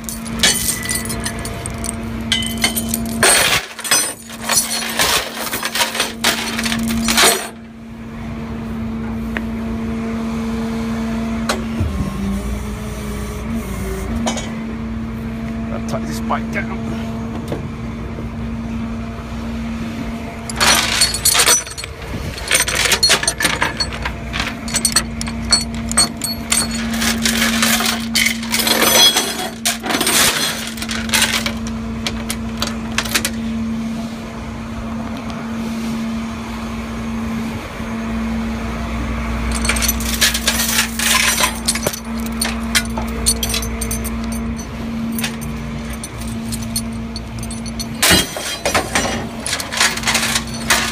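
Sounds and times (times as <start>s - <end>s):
broken plastic and glass clattering: 0.0s - 7.6s, 20.5s - 33.3s, 39.5s - 50.9s.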